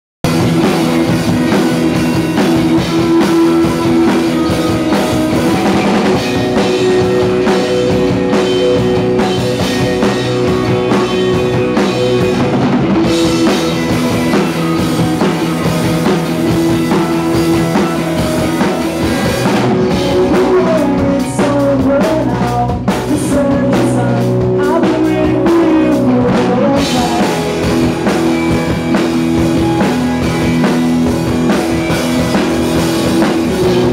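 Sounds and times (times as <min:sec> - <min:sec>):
rock band playing: 0:00.2 - 0:33.9.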